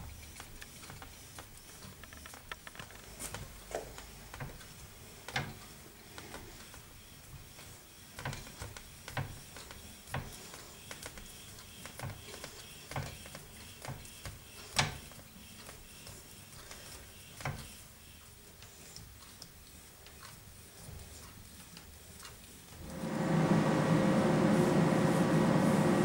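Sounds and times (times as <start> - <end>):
tyre-fitting machine clicking and knocking: 0.0 - 6.4, 8.2 - 11.1.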